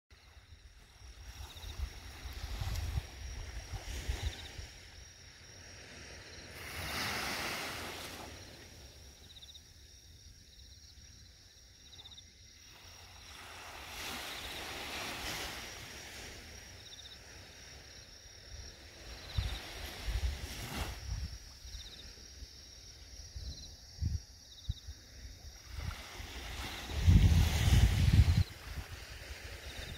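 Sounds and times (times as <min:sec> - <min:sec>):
insects chirping: 0:00.1 - 0:29.9
small waves washing on sand: 0:00.2 - 0:09.3, 0:12.6 - 0:22.4, 0:25.1 - 0:29.9
wind knocks on microphone: 0:01.4 - 0:04.5.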